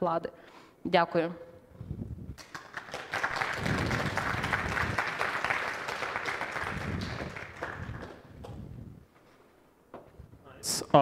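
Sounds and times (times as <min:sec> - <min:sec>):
audience applauding: 0:02.4 - 0:08.4.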